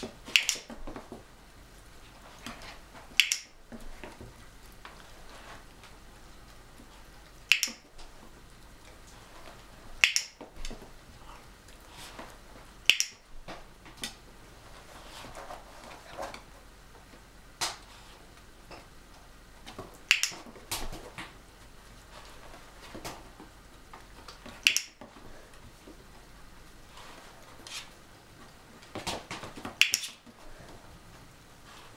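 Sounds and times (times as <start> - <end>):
dog-training clicker clicks: 0.3 - 0.7, 3.2 - 3.5, 7.5 - 7.8, 10.0 - 10.4, 12.9 - 13.2, 20.1 - 20.4, 24.6 - 25.0, 29.8 - 30.1.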